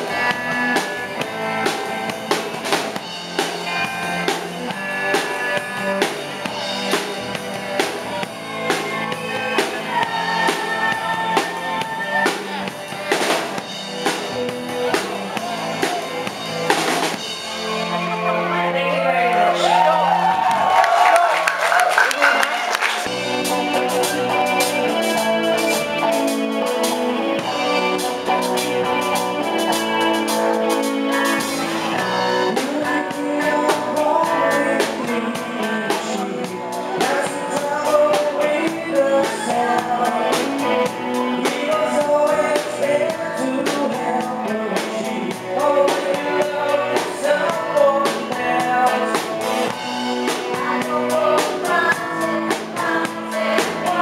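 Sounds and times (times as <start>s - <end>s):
drum kit: 0.0s - 18.3s, 19.4s - 54.0s
guitar: 0.0s - 54.0s
woman singing into microphone: 50.4s - 54.0s.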